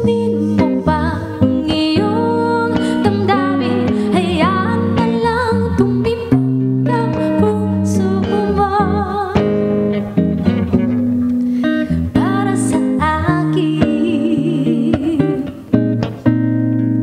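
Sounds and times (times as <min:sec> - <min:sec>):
woman singing with vibrato: 0:00.0 - 0:09.9, 0:11.9 - 0:15.8
clean electric guitar: 0:00.0 - 0:17.0.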